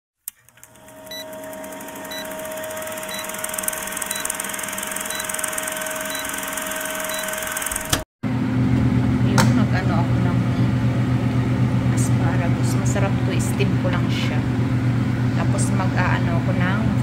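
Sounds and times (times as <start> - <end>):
steady hum: 0.7 - 17.0
short high beeps: 3.1 - 4.4, 5.0 - 5.4, 6.0 - 6.4.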